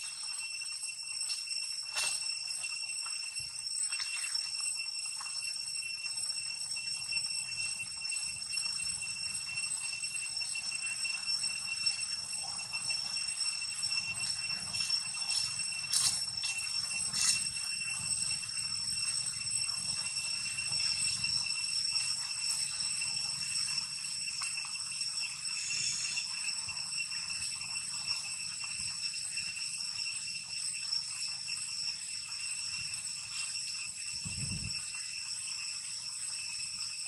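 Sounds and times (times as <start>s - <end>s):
high-pitched insect drone: 0.0s - 37.0s.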